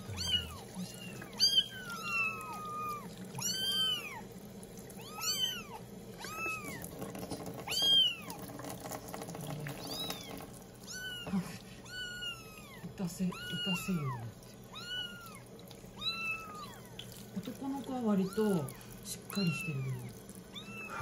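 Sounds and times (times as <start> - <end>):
kittens meowing: 0.0 - 4.3, 5.0 - 6.9, 9.8 - 17.0, 19.4 - 21.0.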